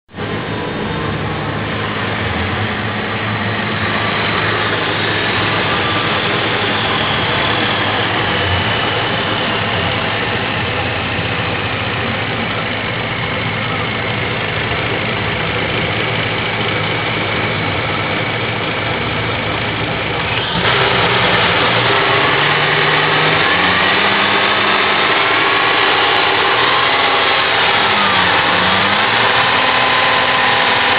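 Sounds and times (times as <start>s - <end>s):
car engine idling: 0.1s - 30.9s.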